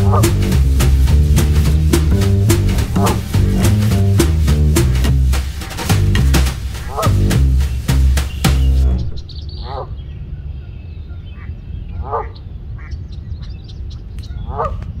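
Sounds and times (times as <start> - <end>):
music: 0.0 - 9.1
ducks quacking: 0.0 - 10.0, 11.4 - 13.0, 14.4 - 14.8
small birds chirping: 6.8 - 15.0.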